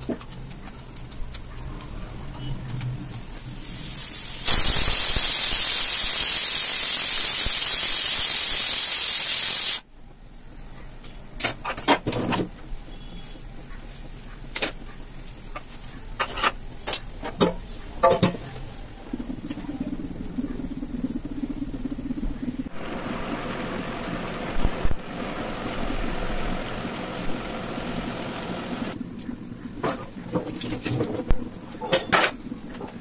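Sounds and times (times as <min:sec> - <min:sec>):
pressure cooker steam hissing: 0:00.3 - 0:09.9, 0:12.3 - 0:29.0.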